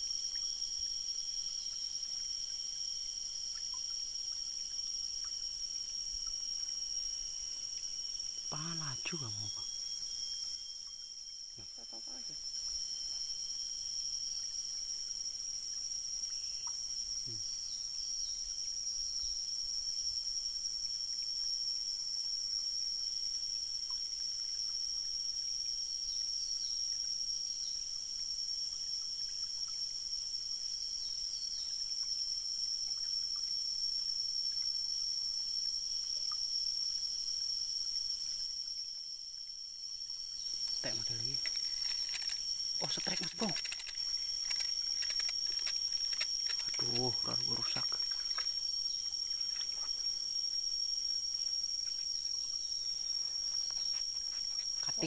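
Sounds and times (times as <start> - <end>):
insects droning: 0.0 - 55.0
stream water flowing: 37.3 - 55.0.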